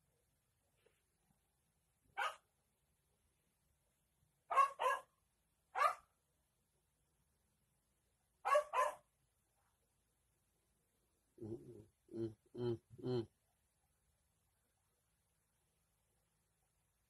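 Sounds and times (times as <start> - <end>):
dog barking: 2.2 - 2.5, 4.5 - 6.1, 8.4 - 9.1.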